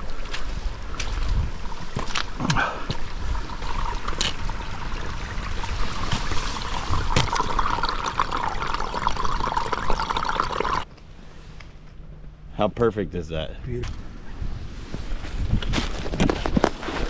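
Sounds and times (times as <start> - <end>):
stream trickling and gurgling: 0.0 - 10.9.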